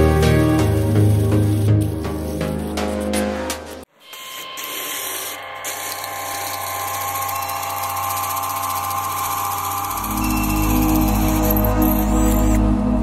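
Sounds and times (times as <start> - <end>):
power tool running: 4.0 - 12.7.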